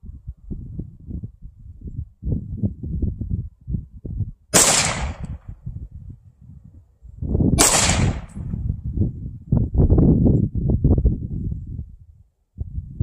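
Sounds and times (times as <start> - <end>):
rifle shots: 4.6 - 5.4, 7.6 - 8.5.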